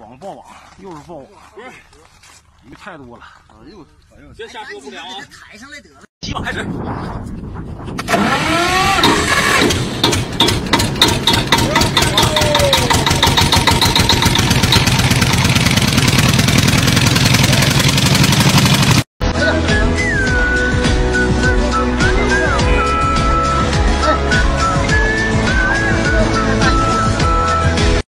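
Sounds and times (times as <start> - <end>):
engine running loudly: 8.1 - 19.1
people calling out: 11.5 - 13.6.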